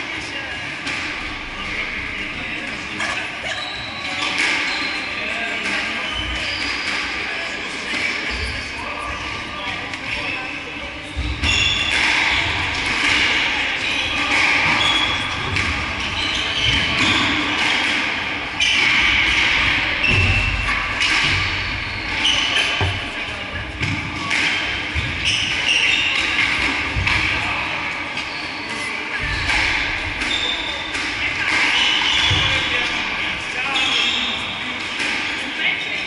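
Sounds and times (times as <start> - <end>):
shoes squeaking on floorboards: 16.0 - 17.4, 21.4 - 23.4, 25.0 - 26.2, 28.2 - 29.4
squash ball thudding: 18.9 - 25.2.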